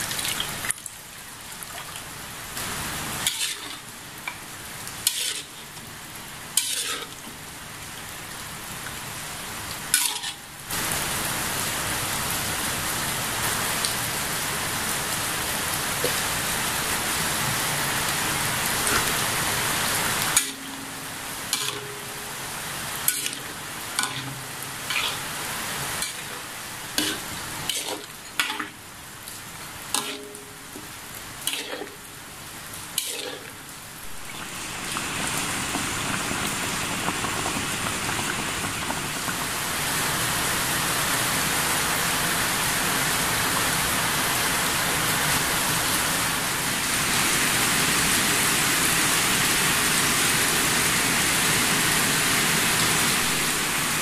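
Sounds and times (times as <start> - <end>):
soft simmer: 0.0 - 12.5, 14.4 - 41.2
steady hiss: 2.1 - 54.0.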